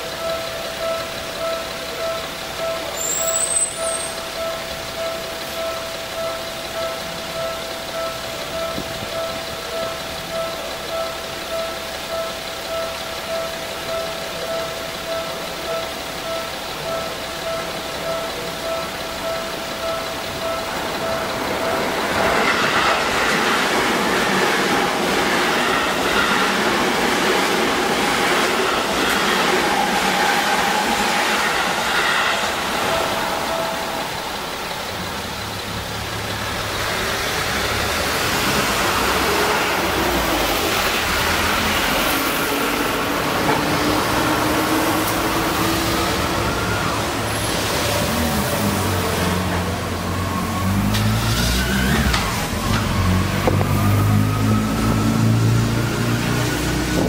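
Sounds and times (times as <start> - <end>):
level crossing bell dinging: 0.0 - 22.6
car engines pulling away: 0.0 - 57.0
train wheel and rail noise: 0.0 - 57.0.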